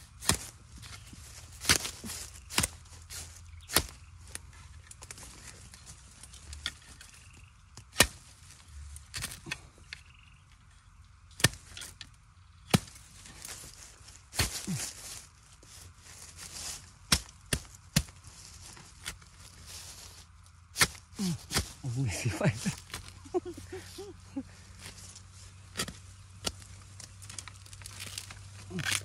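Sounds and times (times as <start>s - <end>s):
spade chopping into soil: 0.2s - 4.0s, 7.7s - 8.3s, 11.4s - 12.0s, 12.7s - 13.6s, 14.3s - 15.0s, 17.1s - 18.2s, 20.8s - 23.2s, 25.7s - 29.0s.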